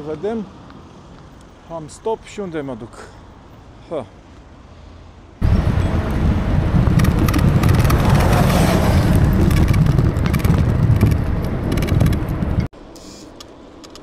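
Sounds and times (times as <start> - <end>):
wind buffeting microphone: 5.4 - 12.7.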